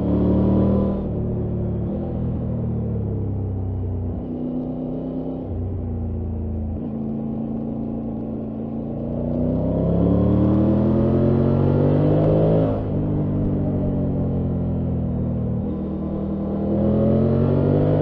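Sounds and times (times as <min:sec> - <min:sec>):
motorcycle engine revving: 0:04.0 - 0:18.0.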